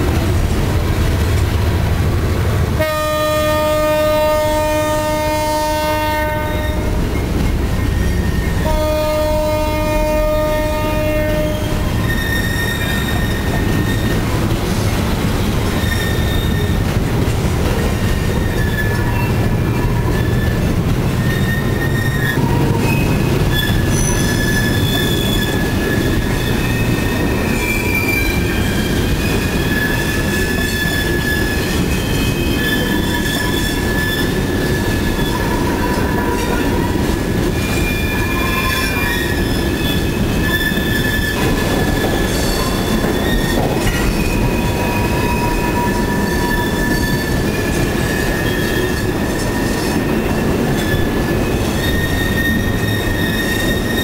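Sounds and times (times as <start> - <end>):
steel wheels rumbling on rails: 0.0 - 54.0
wheel flanges squealing: 5.9 - 54.0.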